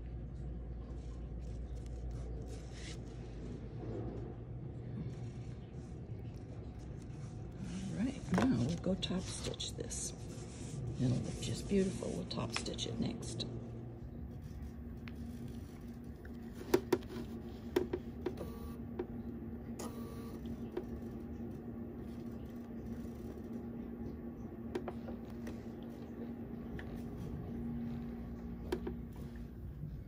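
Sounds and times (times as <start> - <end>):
sewing machine low hum: 13.5 - 30.0.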